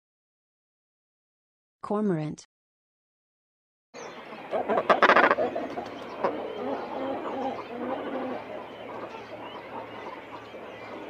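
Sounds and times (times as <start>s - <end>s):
cormorant croaking: 4.0s - 11.0s.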